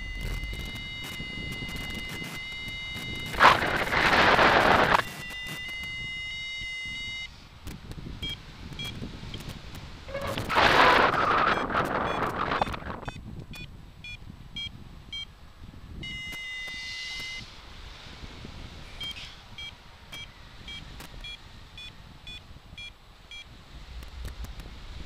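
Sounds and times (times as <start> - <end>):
scattered clicks: 0.0 - 6.0, 7.6 - 13.7, 21.0 - 21.4, 24.0 - 24.7
variometer beeping in short pips: 0.0 - 7.3, 8.2 - 9.4, 10.1 - 15.3, 16.0 - 17.4, 19.0 - 23.5
wind rushing on microphone: 0.0 - 25.0.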